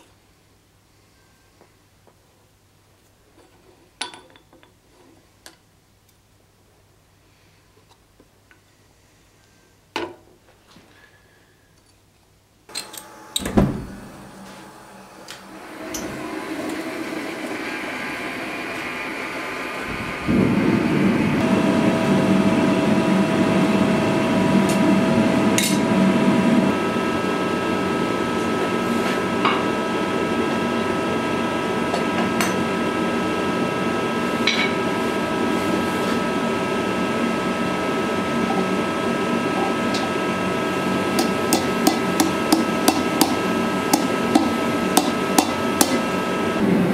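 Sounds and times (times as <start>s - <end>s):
gas forge blower rushing: 12.7s - 46.9s.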